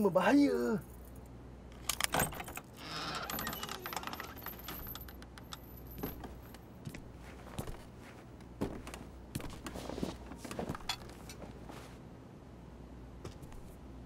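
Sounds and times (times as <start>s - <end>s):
door handle and latch rattling: 1.8s - 6.6s.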